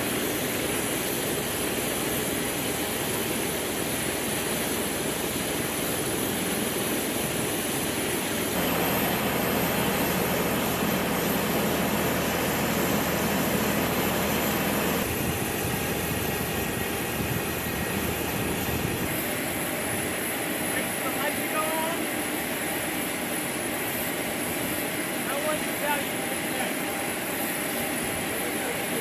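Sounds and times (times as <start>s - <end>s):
engine and machinery drone: 0.0s - 21.0s
high whine: 8.6s - 15.4s.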